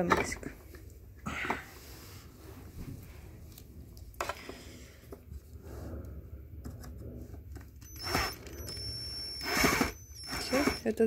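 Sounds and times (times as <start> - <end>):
cordless drill tightening bolt: 7.8 - 10.9.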